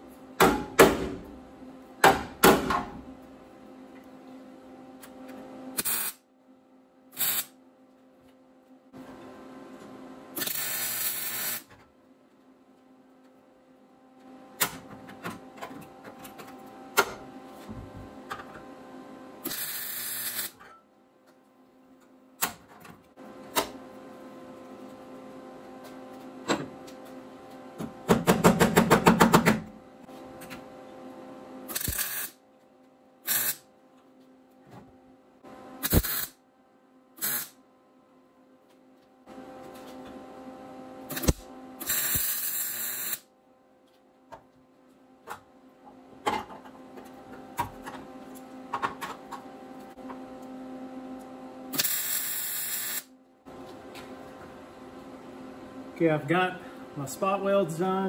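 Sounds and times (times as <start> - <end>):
welder arc crackling: 35.9 - 36.3.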